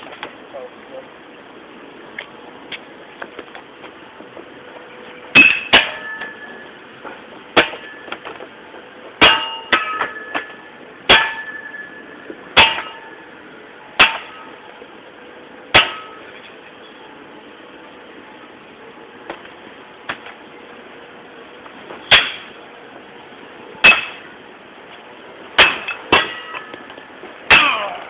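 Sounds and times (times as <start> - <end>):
shovel clanging on scrap metal: 5.3 - 8.4, 9.2 - 13.3, 14.0 - 14.6, 15.7 - 16.5, 22.0 - 22.6, 23.8 - 24.3, 25.6 - 28.0.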